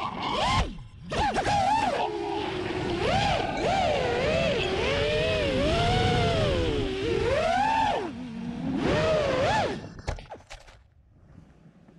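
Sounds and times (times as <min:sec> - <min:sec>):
drone motors whining: 0:00.0 - 0:10.1.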